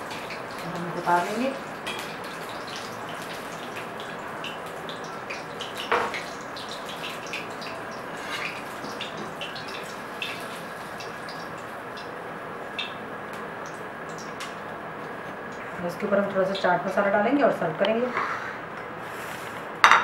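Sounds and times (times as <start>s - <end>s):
oil crackling: 0.0s - 15.8s
deep-frying sizzle: 0.0s - 17.3s.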